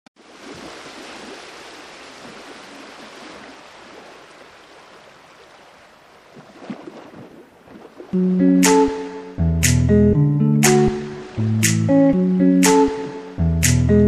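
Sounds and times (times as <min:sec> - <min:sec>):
running water rushing: 0:00.2 - 0:09.2, 0:10.6 - 0:13.4.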